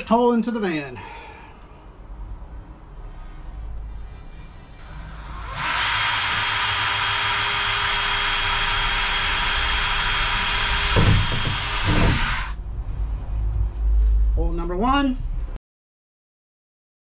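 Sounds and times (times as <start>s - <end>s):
cordless drill boring sheet steel: 4.8s - 12.6s
low thumps: 10.9s - 14.4s.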